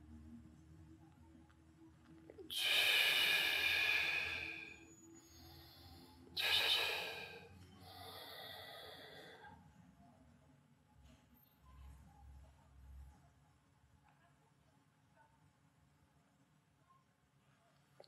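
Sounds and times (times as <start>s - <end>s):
man breathing forcefully: 2.5s - 4.8s, 6.4s - 9.2s.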